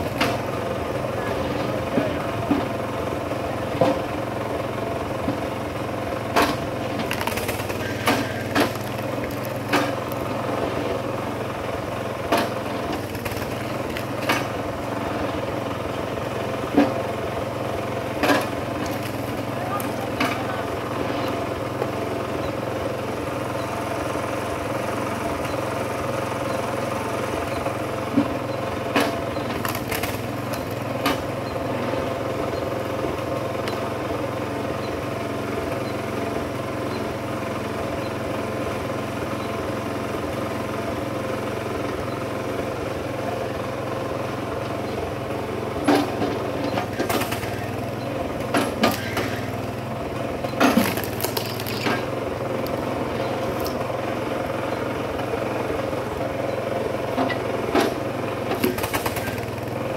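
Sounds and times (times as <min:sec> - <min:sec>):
small engine running: 0:00.0 - 0:59.9
wood cracking and knocking: 0:06.4 - 0:10.4, 0:12.3 - 0:14.5, 0:18.2 - 0:19.9, 0:29.5 - 0:31.2, 0:50.6 - 0:52.8.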